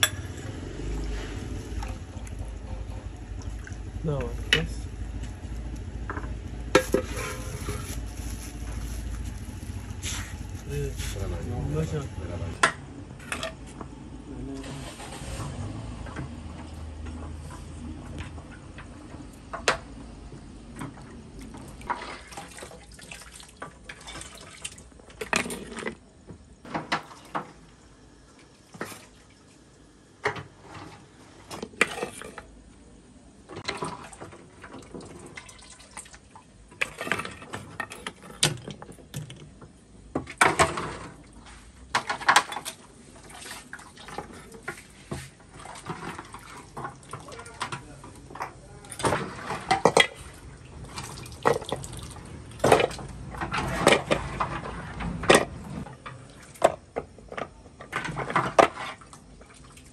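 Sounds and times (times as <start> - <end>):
liquid sloshing and pouring: 0.4 - 4.0, 20.7 - 26.0, 33.5 - 39.4, 40.3 - 56.9.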